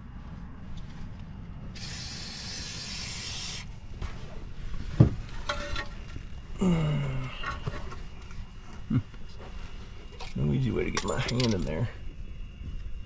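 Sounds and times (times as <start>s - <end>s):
aerosol can spraying hiss: 1.8s - 3.7s.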